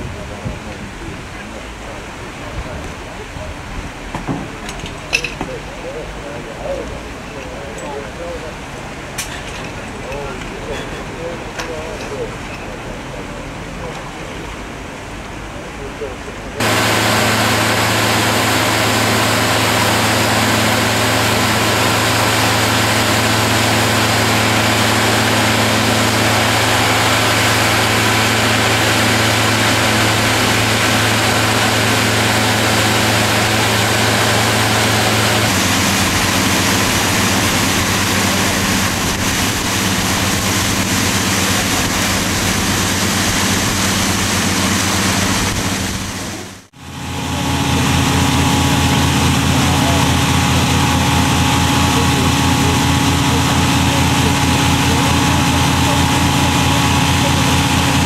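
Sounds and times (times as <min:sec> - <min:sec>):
pump engine running: 0:16.0 - 0:58.0
water gushing from hose: 0:16.6 - 0:58.0.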